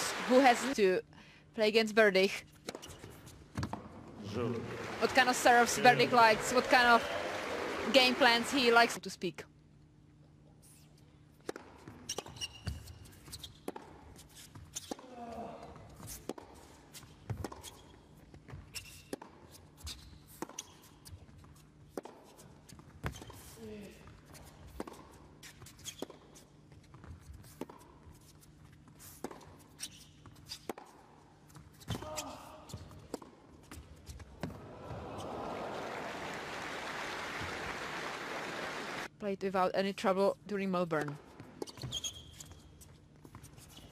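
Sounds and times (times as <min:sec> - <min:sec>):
crowd applauding: 0:00.0 - 0:00.8, 0:04.2 - 0:09.0, 0:34.6 - 0:39.1.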